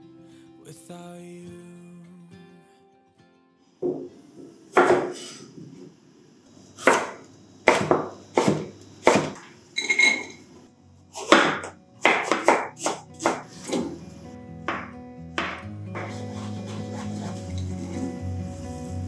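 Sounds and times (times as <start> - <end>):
knife chopping on wooden board: 4.8 - 5.3, 6.8 - 9.5, 11.2 - 14.0, 14.7 - 17.4.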